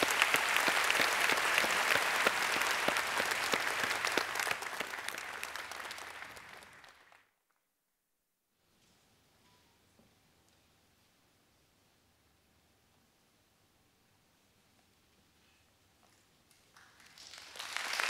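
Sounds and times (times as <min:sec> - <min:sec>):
large audience applauding: 0:00.0 - 0:07.3, 0:16.7 - 0:18.0.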